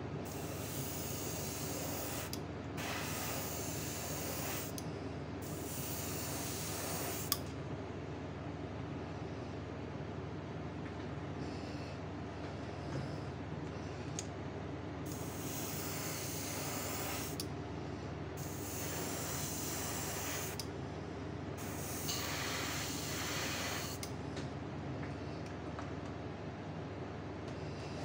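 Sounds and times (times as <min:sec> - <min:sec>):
steady low hum: 0:00.0 - 0:28.0
airbrush hissing bursts: 0:00.3 - 0:04.8, 0:05.4 - 0:07.4, 0:15.1 - 0:17.4, 0:18.4 - 0:20.6, 0:21.6 - 0:24.0.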